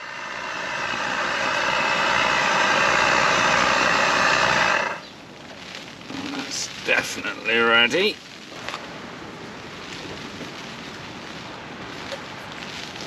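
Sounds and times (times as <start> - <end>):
camping stove rushing: 0.0 - 5.1.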